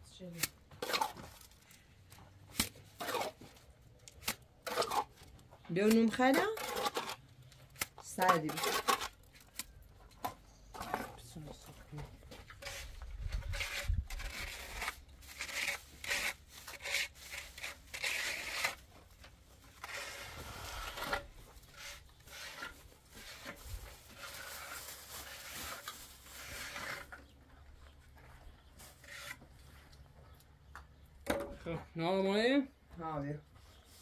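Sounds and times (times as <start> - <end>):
trowel scraping over cement: 2.8 - 7.3, 8.0 - 9.4, 12.4 - 18.9, 19.6 - 27.4, 28.8 - 29.6.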